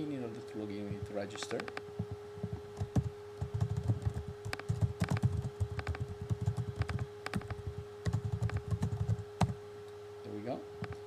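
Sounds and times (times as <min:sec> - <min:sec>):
steady hum: 0:00.0 - 0:11.0
typing on computer keyboard: 0:02.4 - 0:09.6.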